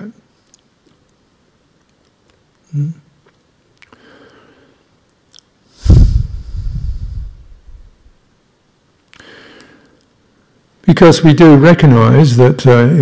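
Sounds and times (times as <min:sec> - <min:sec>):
mouth and breath noises: 0:05.7 - 0:08.0
breath blowing onto microphone: 0:05.7 - 0:08.1.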